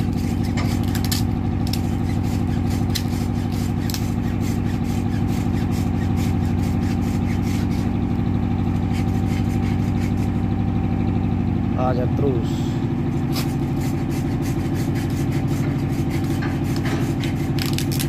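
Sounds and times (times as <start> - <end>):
boat diesel engine droning: 0.0 - 18.0
tape pulled off roll: 16.2 - 18.0.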